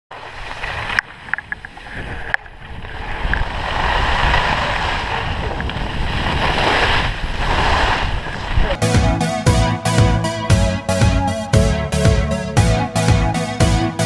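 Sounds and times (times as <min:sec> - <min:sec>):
skis hissing over snow: 0:00.1 - 0:08.8
wind on microphone: 0:00.4 - 0:08.8.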